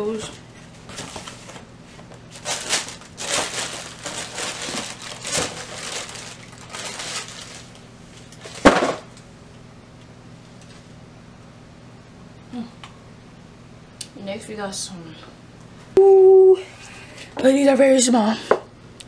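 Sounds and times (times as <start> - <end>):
tissue paper rustling: 2.3 - 8.6.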